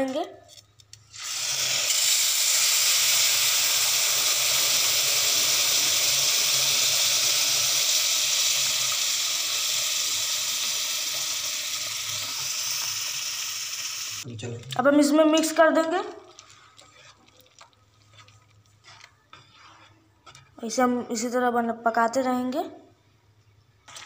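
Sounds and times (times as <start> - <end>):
liquid sizzling in hot pan: 1.0 - 14.3.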